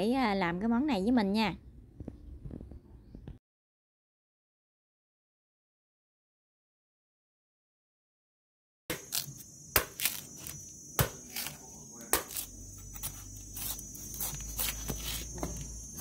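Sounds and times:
insects chirping: 8.9 - 16.0
machete chopping coconut husk: 8.9 - 16.0.

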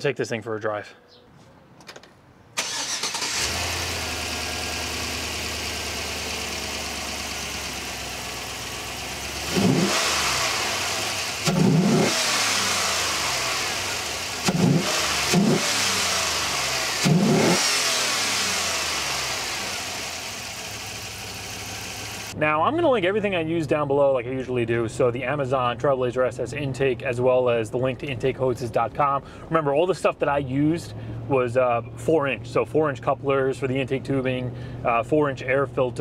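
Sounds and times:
engine revving: 2.6 - 22.4
engine starting and idling: 2.6 - 22.4.

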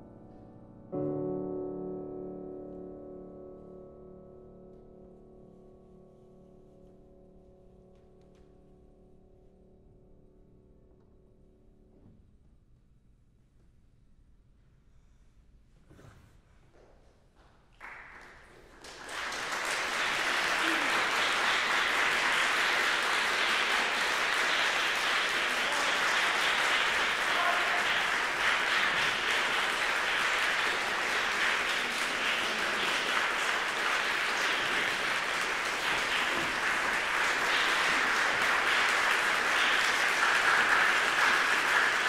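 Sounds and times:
audience applauding: 17.8 - 42.0.

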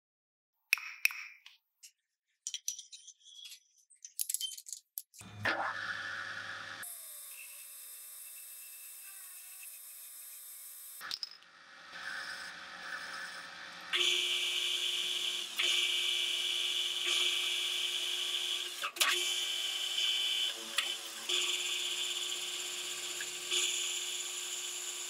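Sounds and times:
metal lathe cutting steel: 5.2 - 25.0.

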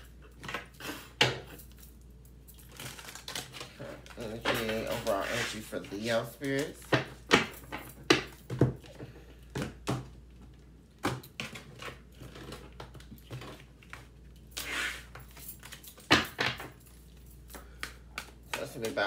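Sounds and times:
cards clicking and tapping: 17.5 - 19.0.

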